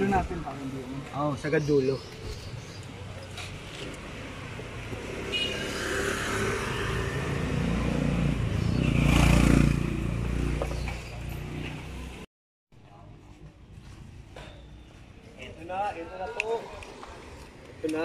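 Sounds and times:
vehicle passing by: 0:04.1 - 0:12.2.

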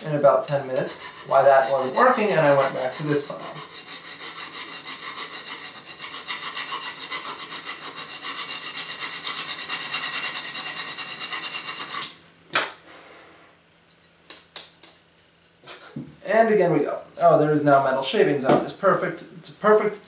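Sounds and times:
hand file rasping on metal: 0:00.4 - 0:12.2.

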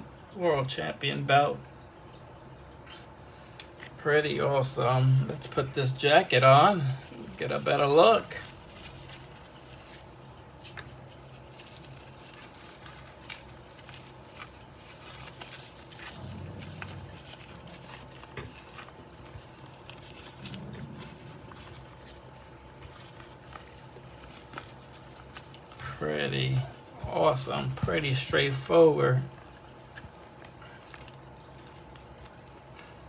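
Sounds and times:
fabric rustling: 0:06.6 - 0:33.0.

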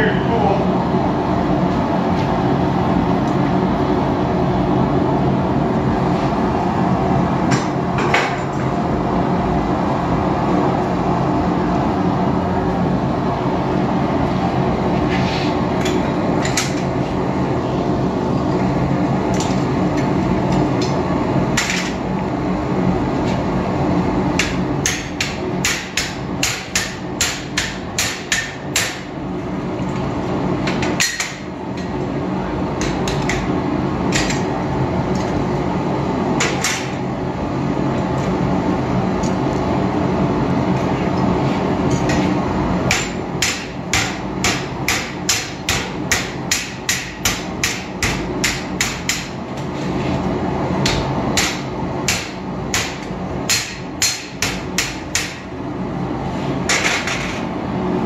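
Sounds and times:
gas forge burner rushing: 0:00.0 - 0:58.0
hammer striking hot steel on anvil: 0:24.4 - 0:29.1, 0:30.7 - 0:31.9, 0:32.8 - 0:33.5, 0:34.1 - 0:34.5, 0:41.9 - 0:49.4, 0:50.8 - 0:55.5.

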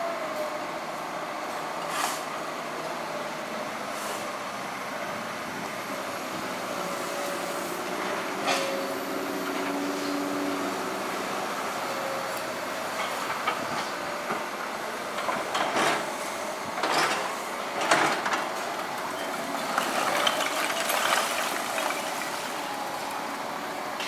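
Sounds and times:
excavators running: 0:00.8 - 0:24.0
brick and rubble clattering: 0:19.2 - 0:22.5
bucket digging into rubble: 0:19.6 - 0:22.4.

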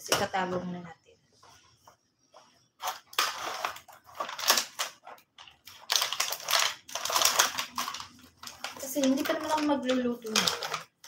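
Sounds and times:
plastic wrapping crinkling: 0:02.8 - 0:11.0.

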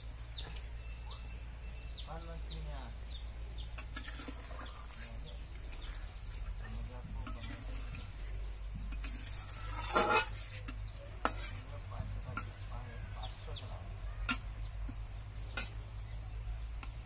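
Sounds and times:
spatula scraping a wok: 0:03.7 - 0:12.6, 0:15.4 - 0:16.0.

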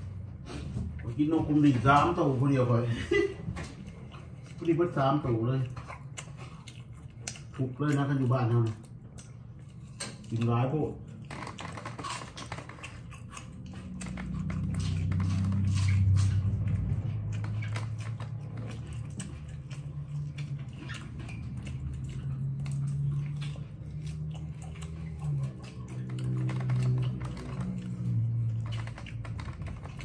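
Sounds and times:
chewing with wet mouth clicks: 0:00.0 - 0:30.0
low droning hum: 0:00.0 - 0:30.0.

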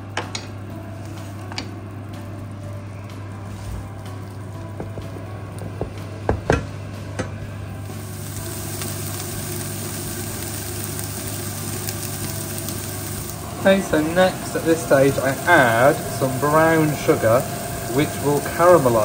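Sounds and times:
onions sizzling in butter: 0:07.8 - 0:19.0.

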